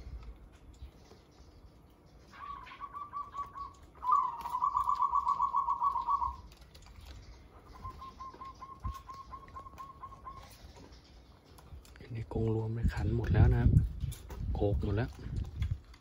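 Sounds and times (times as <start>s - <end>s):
doves cooing: 2.2s - 11.9s.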